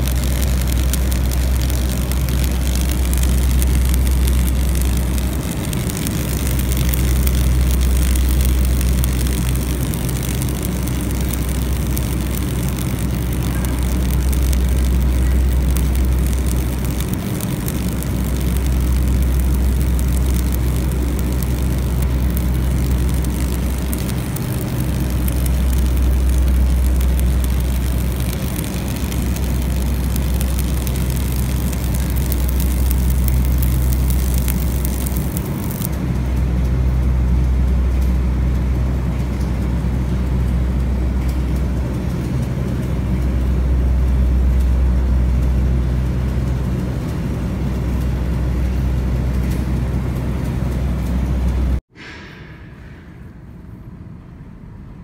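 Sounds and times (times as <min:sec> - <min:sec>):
welding arc hissing and crackling: 0:00.0 - 0:36.0
loud low hum: 0:00.0 - 0:55.0.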